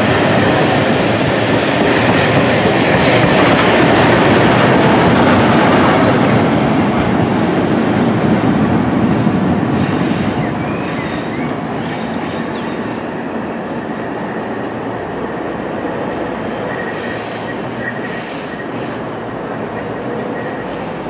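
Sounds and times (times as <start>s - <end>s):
train rumbling along track: 0.0s - 21.0s
faint wheel squeals: 16.6s - 18.8s, 19.4s - 21.0s.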